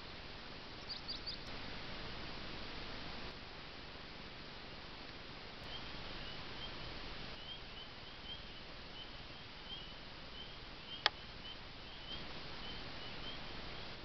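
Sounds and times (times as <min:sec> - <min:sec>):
faint high peeps: 0:00.8 - 0:01.5.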